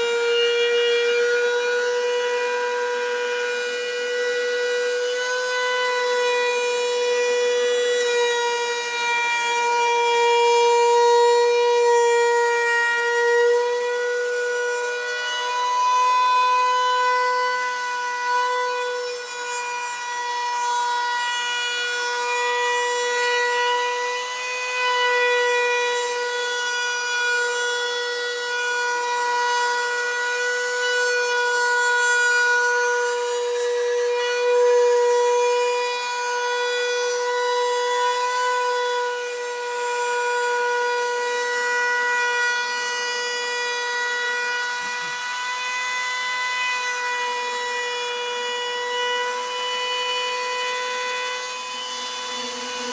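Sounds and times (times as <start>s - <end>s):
router whining: 0.0s - 52.9s.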